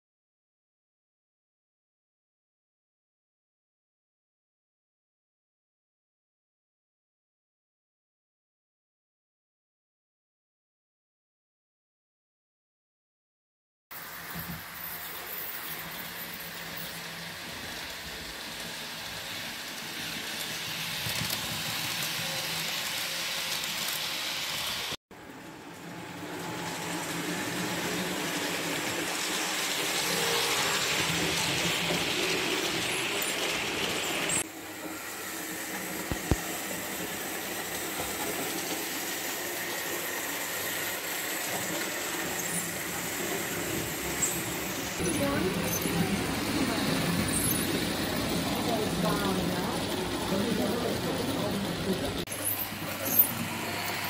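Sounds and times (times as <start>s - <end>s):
model train motors whirring: 14.0s - 54.0s.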